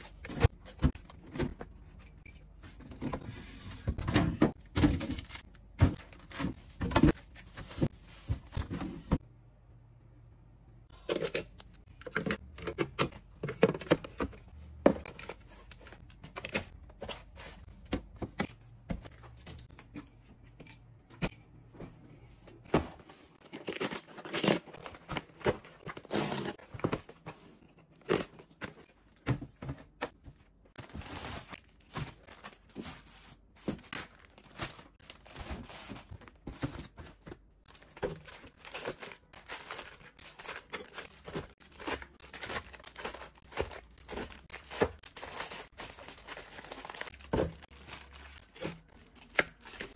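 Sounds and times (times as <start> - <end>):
foil snack bags crinkling: 37.7 - 49.9.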